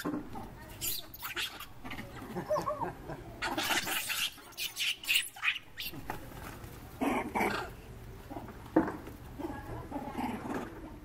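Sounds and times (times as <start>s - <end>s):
young monkeys squealing and screeching: 0.8s - 2.7s, 3.4s - 6.0s.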